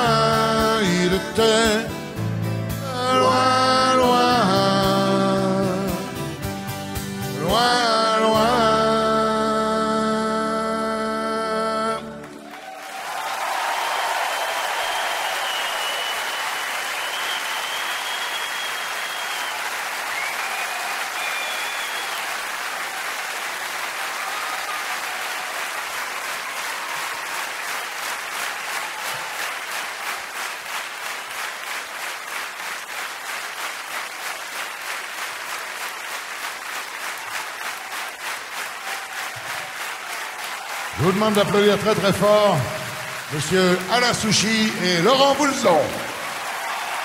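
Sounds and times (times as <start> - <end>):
audience applauding: 12.0 - 47.0
rhythmic clapping in unison: 12.2 - 47.0
high whistles: 13.8 - 22.4.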